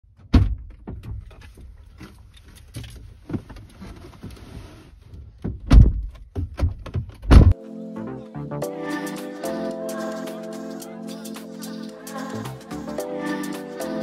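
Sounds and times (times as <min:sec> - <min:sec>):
clothing rustling against seat: 0:01.3 - 0:05.1.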